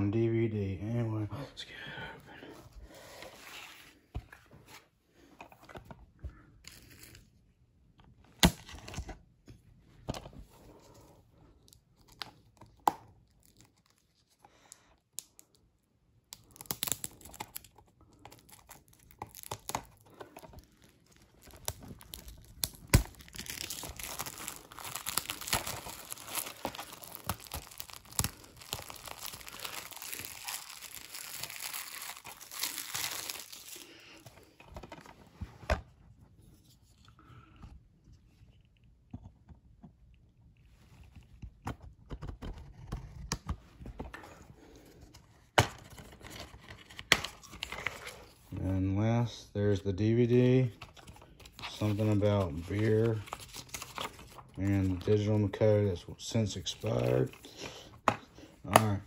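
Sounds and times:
shrink wrap crinkling: 16.3 - 35.1, 50.1 - 59.0.

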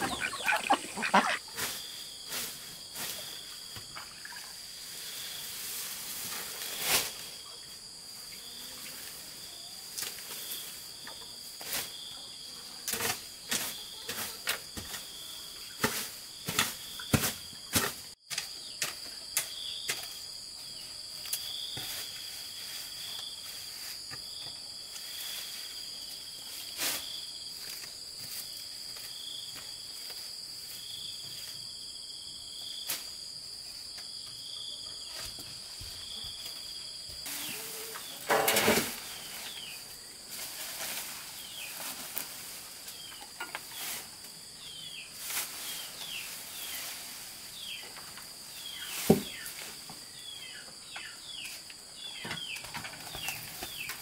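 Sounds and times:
hoe knocking and scraping soil: 0.0 - 1.4, 37.3 - 39.8
insects chirring: 0.0 - 54.0.

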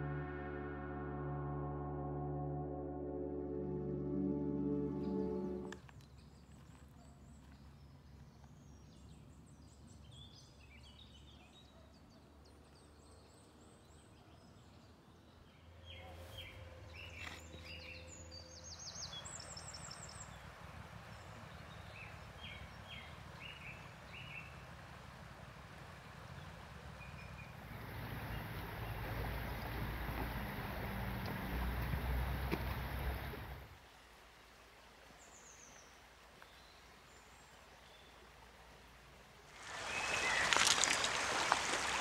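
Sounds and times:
stream rushing: 19.0 - 42.0.

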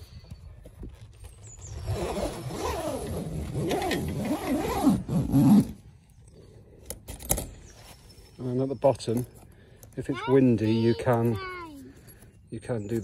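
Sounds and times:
tent zip being drawn: 1.6 - 6.0.

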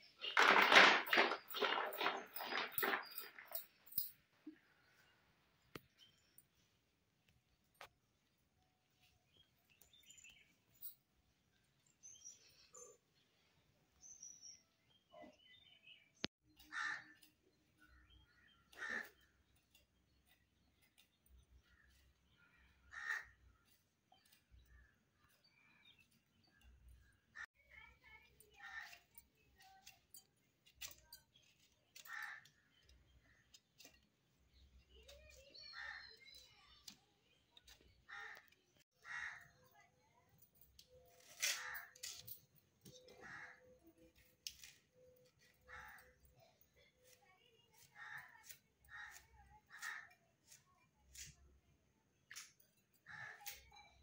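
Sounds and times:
crow cawing: 16.7 - 17.2, 22.9 - 23.4
knife scraping produce: 40.8 - 46.2, 46.8 - 51.5.

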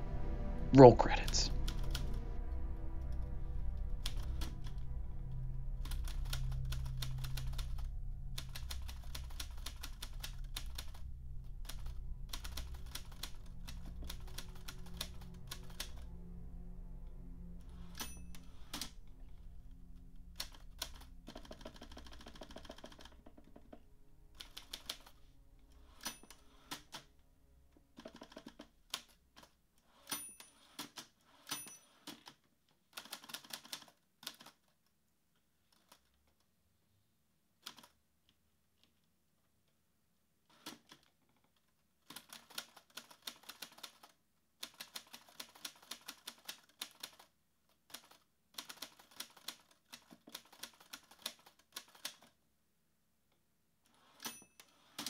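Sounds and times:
low hum: 0.0 - 28.0
keyboard typing: 1.5 - 2.2, 5.8 - 11.0, 11.6 - 16.1, 20.3 - 25.2, 28.0 - 29.2, 33.0 - 34.6, 42.1 - 47.3, 47.9 - 52.4.

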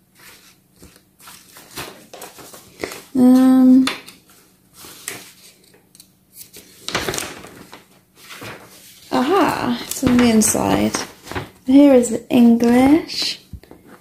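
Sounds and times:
paper rustling and crackling: 0.1 - 14.0
person humming: 3.2 - 3.9.

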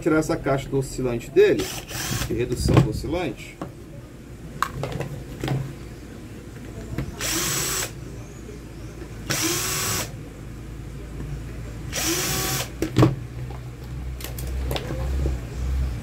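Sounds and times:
cordless drill whining: 1.6 - 2.3, 7.2 - 8.0, 9.3 - 10.1, 11.9 - 12.7.

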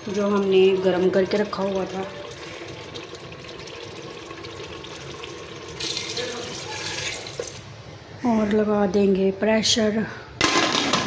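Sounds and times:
water pouring into a pot: 0.0 - 7.6.

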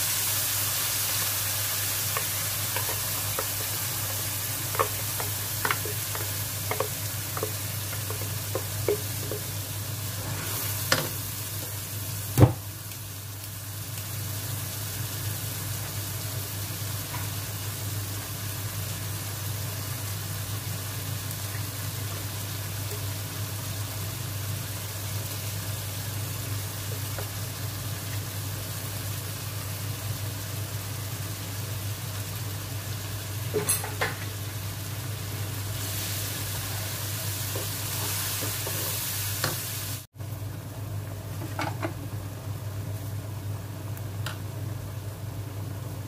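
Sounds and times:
paste sizzling in oil: 0.0 - 15.7, 34.2 - 40.1.

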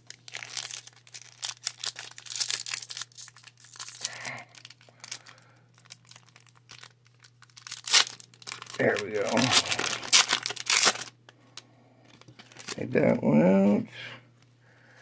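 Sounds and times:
plastic wrapper tearing and crinkling: 0.0 - 11.2, 12.1 - 12.9.

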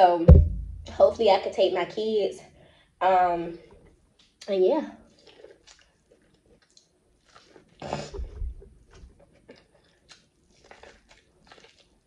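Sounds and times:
chewing corn on the cob: 4.2 - 12.0.

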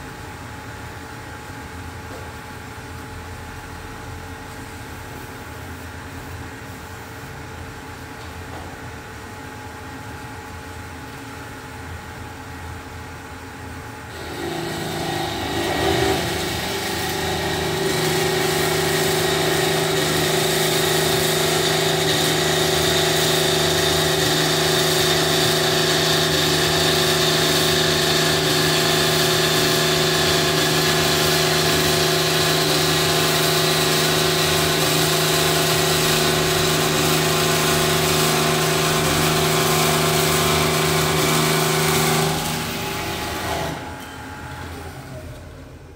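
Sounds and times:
band saw cutting metal: 14.1 - 45.2.

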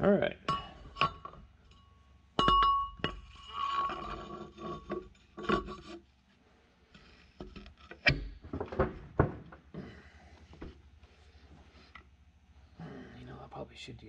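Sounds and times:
ringing metal clink: 0.5 - 3.7
metal rubbing and scraping: 3.0 - 6.1
dull knocks: 8.4 - 9.6.

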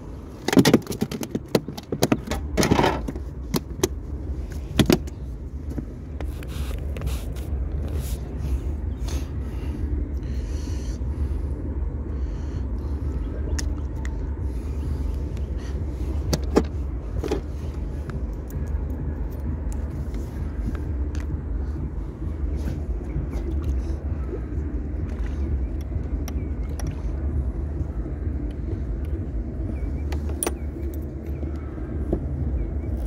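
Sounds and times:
steady low rumble: 0.0 - 33.0
sharp clicks and knocks: 0.4 - 4.0.

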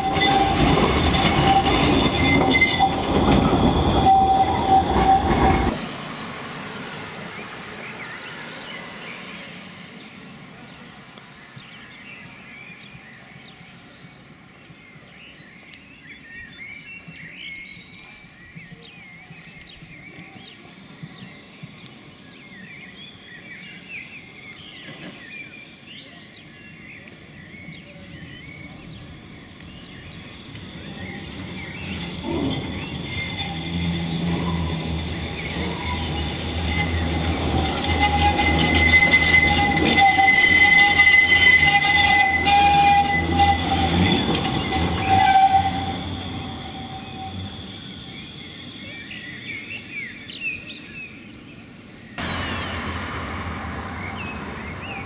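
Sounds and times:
high wheel squeal: 0.0 - 5.8, 30.2 - 49.9
electric tram rumble and hum: 0.0 - 10.5, 27.6 - 50.2, 52.2 - 55.0.

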